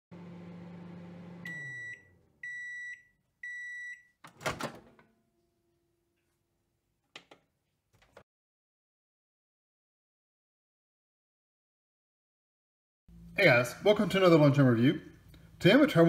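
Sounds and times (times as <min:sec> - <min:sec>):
microwave oven humming: 0:00.1 - 0:02.8.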